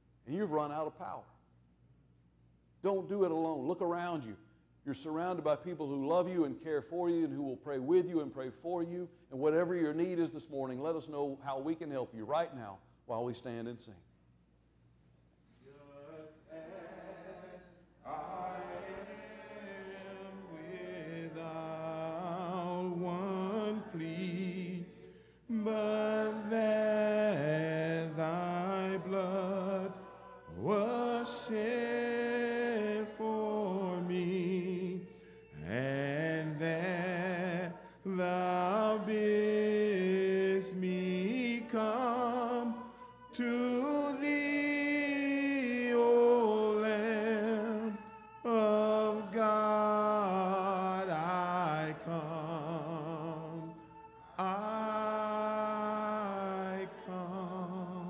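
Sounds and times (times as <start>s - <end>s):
congregation singing a hymn: 15.7s - 58.0s.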